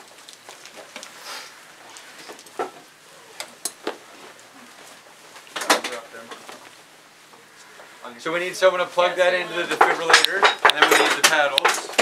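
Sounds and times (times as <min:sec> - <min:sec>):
medical equipment clicks and knocks: 0:09.7 - 0:12.0.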